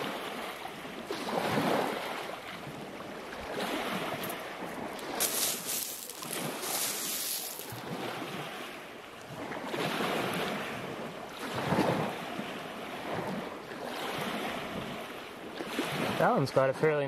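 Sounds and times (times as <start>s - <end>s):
wind on microphone: 0.0s - 15.1s
surf washing on pebbles: 0.0s - 17.0s
hand raking through pebbles: 5.0s - 7.8s.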